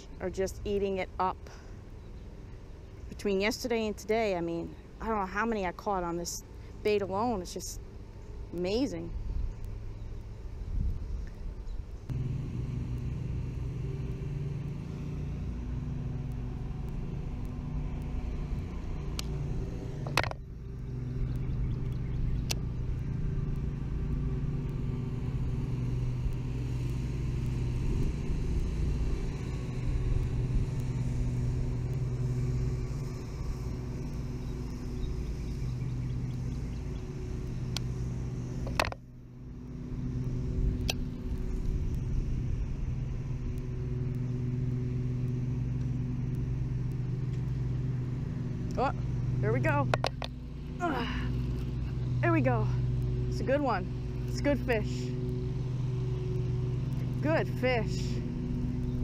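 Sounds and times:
engine humming: 0:00.0 - 0:59.0.

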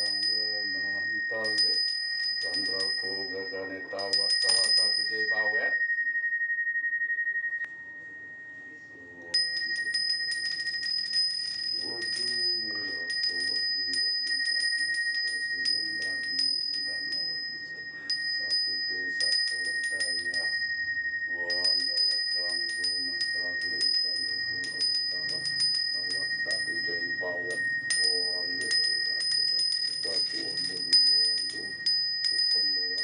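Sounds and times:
man chanting: 0:00.0 - 0:01.8, 0:02.4 - 0:05.8, 0:11.8 - 0:14.6, 0:15.3 - 0:20.6, 0:21.3 - 0:33.0
hand bell ringing: 0:00.0 - 0:06.3, 0:09.2 - 0:33.0.

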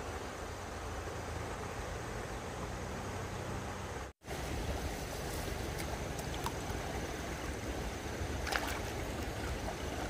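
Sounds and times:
stream water running: 0:00.0 - 0:10.0
light water splashes: 0:04.3 - 0:10.0.

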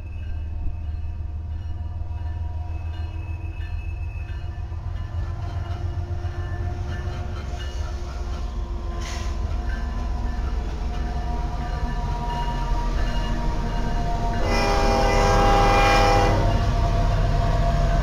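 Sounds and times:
diesel locomotive engine rumble: 0:00.0 - 0:18.0
brief hiss: 0:09.0 - 0:09.4.

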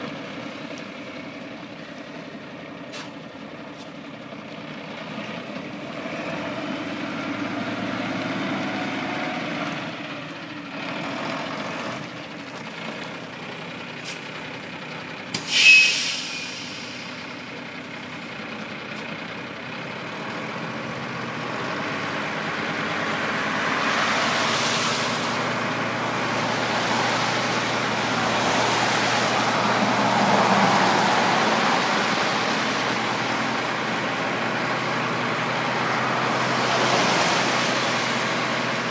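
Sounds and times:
truck diesel engine running: 0:00.0 - 0:38.9
air brake hiss: 0:02.9 - 0:03.2, 0:15.4 - 0:17.4.

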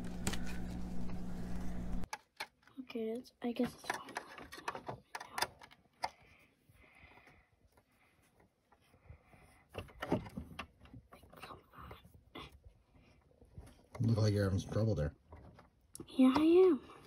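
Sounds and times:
hard plastic parts clicking: 0:03.6 - 0:06.2.

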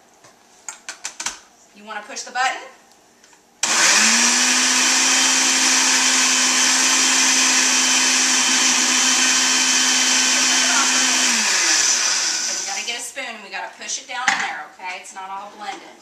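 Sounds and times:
blender motor humming: 0:03.6 - 0:12.9.

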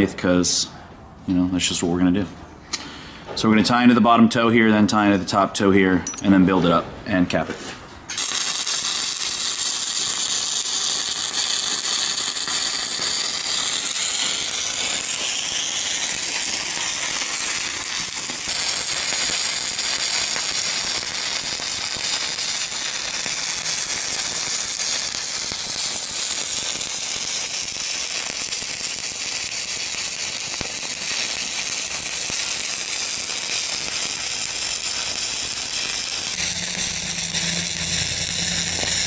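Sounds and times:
welding arc hissing: 0:08.1 - 0:39.0.

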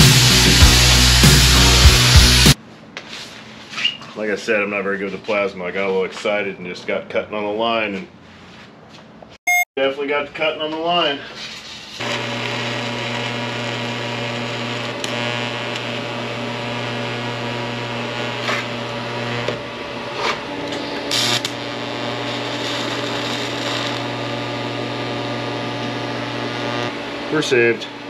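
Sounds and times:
welding arc buzzing: 0:00.0 - 0:02.6, 0:11.9 - 0:28.0
welding crackles and hisses: 0:11.3 - 0:27.8.

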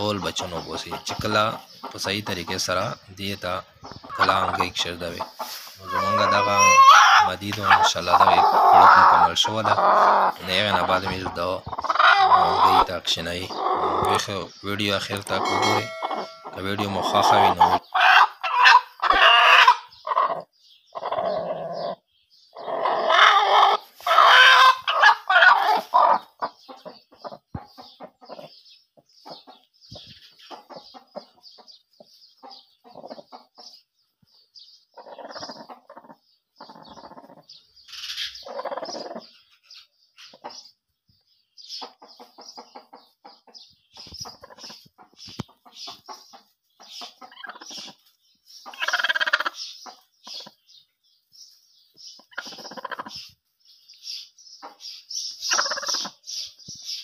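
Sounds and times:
hen clucking: 0:00.0 - 0:33.8, 0:34.9 - 0:40.8, 0:41.6 - 0:50.8, 0:51.9 - 0:53.4, 0:54.6 - 0:57.0
straw rustling: 0:04.1 - 0:13.3.

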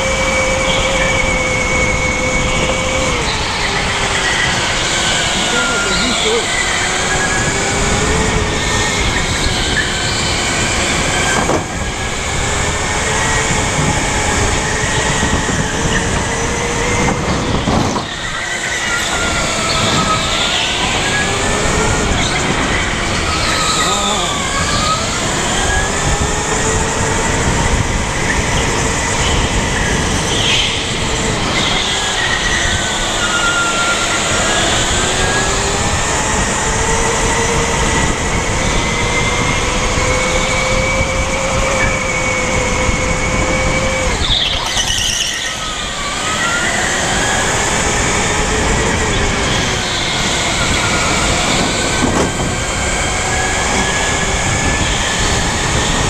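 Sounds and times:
electric motor whining: 0:00.0 - 0:56.0
road and wind noise: 0:00.0 - 0:56.0.

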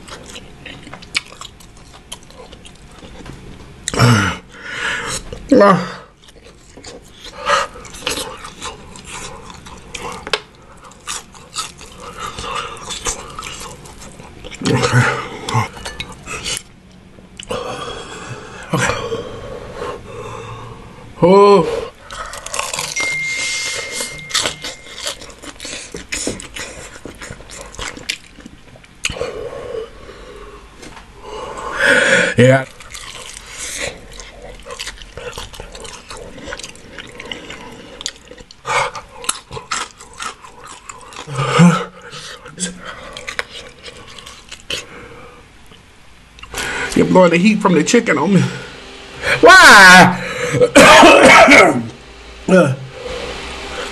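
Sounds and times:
man chewing and smacking food: 0:00.0 - 0:05.5, 0:06.1 - 0:19.0, 0:22.0 - 0:29.3, 0:32.6 - 0:47.0
low voiced grunts: 0:05.5 - 0:06.1.

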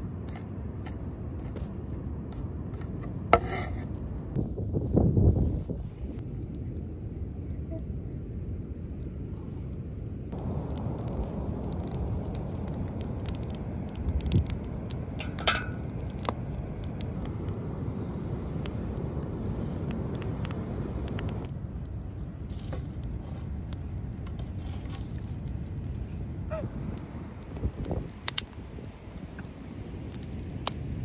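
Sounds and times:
wood fire crackling: 0:10.1 - 0:31.0.

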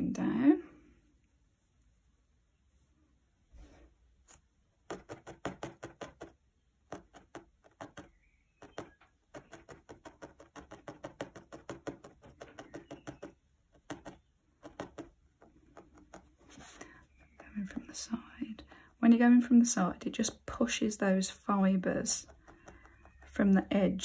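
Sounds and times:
felting needle tapping into foam: 0:04.8 - 0:18.0, 0:22.2 - 0:23.4.

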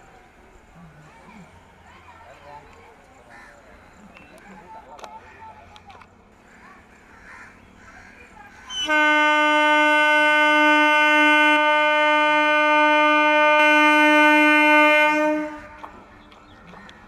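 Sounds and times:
train horn blast: 0:08.8 - 0:16.0.

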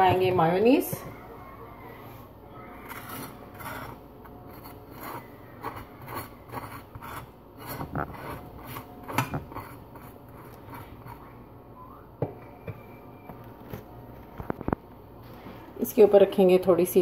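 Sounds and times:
knife rasping across toast: 0:02.9 - 0:11.3.

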